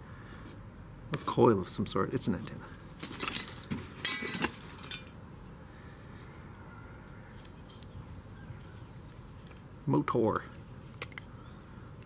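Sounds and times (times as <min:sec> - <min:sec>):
metal parts clinking and rattling: 0:03.0 - 0:05.2.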